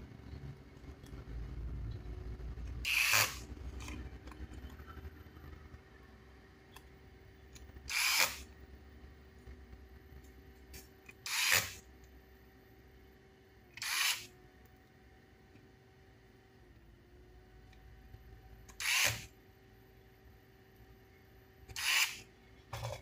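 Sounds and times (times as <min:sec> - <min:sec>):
electric screwdriver driving screws: 0:02.9 - 0:03.4, 0:07.9 - 0:08.4, 0:11.3 - 0:11.8, 0:13.8 - 0:14.3, 0:18.7 - 0:19.3, 0:21.7 - 0:22.2.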